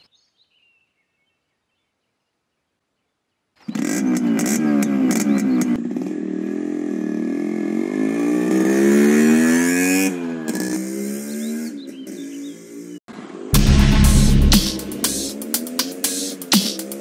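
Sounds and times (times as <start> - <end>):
motorcycle engine revving: 3.6 - 17.0.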